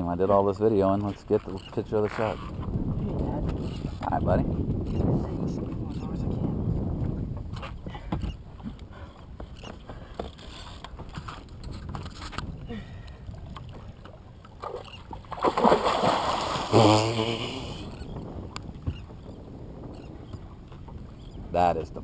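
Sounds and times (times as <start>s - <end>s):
light wind: 0.0s - 22.0s
water lapping against hull: 0.0s - 22.0s
shark splashing at surface: 15.3s - 17.3s.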